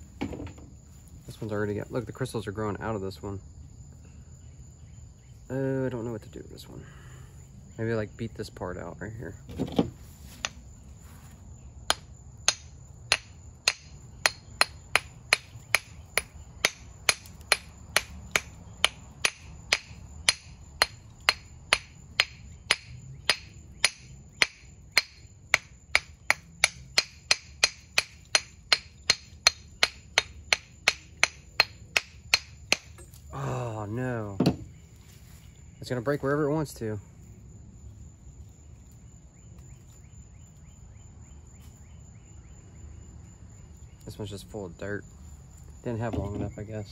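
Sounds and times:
hammer tapping on rock: 11.9s - 33.0s.

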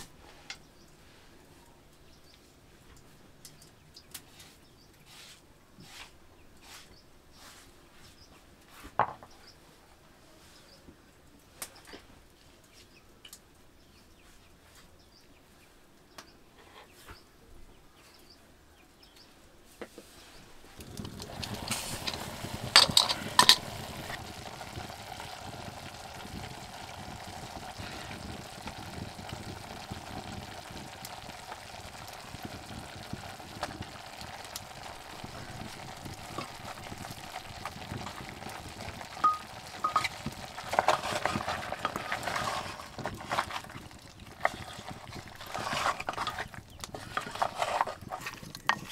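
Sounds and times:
meat sizzling in a pot: 20.7s - 48.9s
metal clinking against pot: 21.5s - 23.7s.

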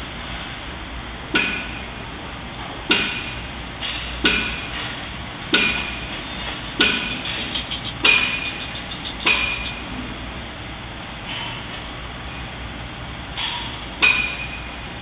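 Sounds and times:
sharp metallic clanks: 2.9s - 10.0s, 13.4s - 14.7s.

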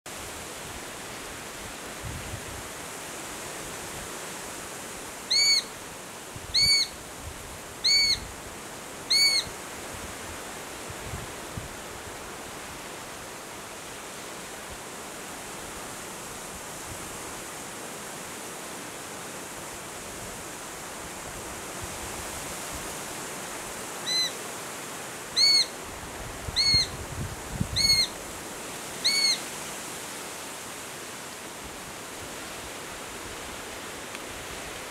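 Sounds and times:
bird begging calls: 5.3s - 5.7s, 6.5s - 7.0s, 7.8s - 8.3s, 9.1s - 9.5s, 24.0s - 24.4s, 25.4s - 25.8s, 26.5s - 27.0s, 27.7s - 28.1s, 29.0s - 29.4s.

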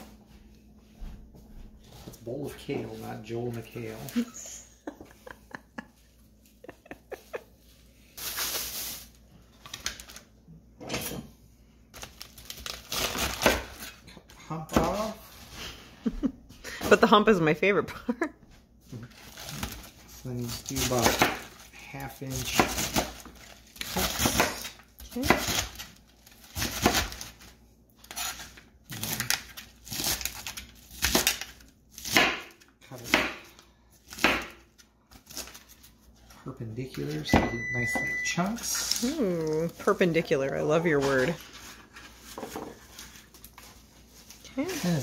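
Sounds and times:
plastic bag crinkling: 8.1s - 10.3s
knife cutting crunchy lettuce: 28.1s - 32.2s.

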